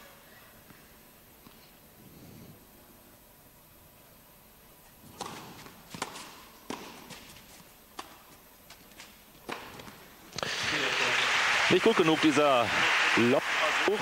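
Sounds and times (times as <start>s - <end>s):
tennis ball struck by racket: 5.1s - 7.2s
tennis ball bouncing on court: 5.1s - 7.3s, 8.0s - 8.4s, 9.4s - 10.5s.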